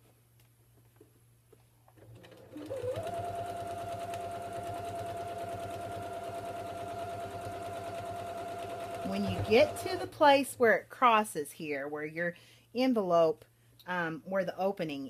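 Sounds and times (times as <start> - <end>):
sewing machine running: 2.0 - 10.2.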